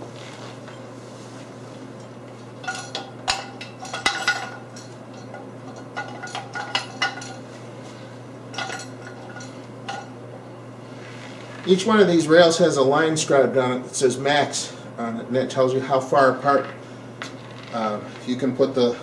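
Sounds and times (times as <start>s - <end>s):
metal tubes clanking: 2.0s - 7.4s, 8.5s - 10.1s.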